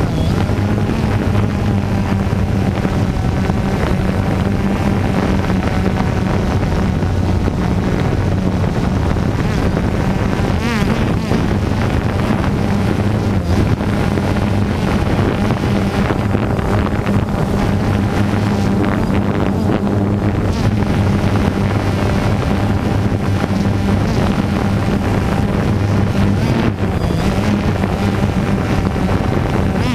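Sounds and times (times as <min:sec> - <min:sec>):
quadcopter propellers humming: 0:00.0 - 0:29.9
wind on microphone: 0:00.0 - 0:29.9.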